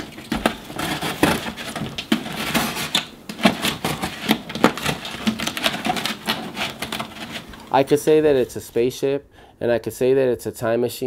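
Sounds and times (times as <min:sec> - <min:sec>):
box cutter sawing cardboard: 0:00.0 - 0:07.7.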